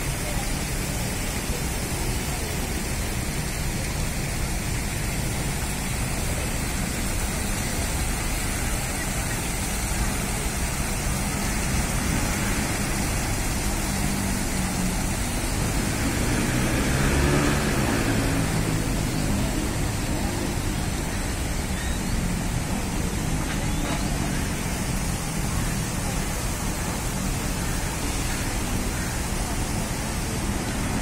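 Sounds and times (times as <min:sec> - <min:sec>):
city traffic: 0:00.0 - 0:31.0
fountain jets splashing: 0:00.0 - 0:31.0.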